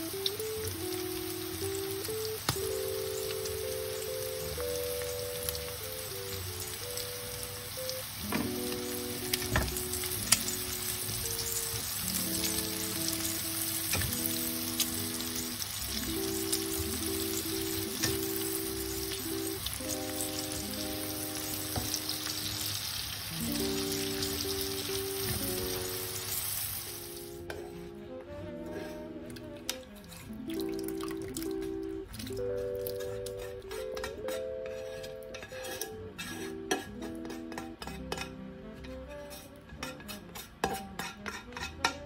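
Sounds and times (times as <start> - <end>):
food sizzling in a frying pan: 0.0 - 27.6
soft background music: 0.0 - 42.0
spatula scraping a pan: 27.3 - 29.2, 32.6 - 42.0.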